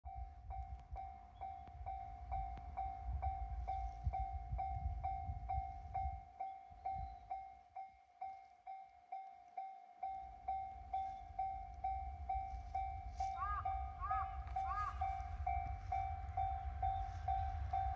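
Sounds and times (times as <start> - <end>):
level crossing bell ringing: 0.1 - 17.9
low rumble: 10.6 - 17.9.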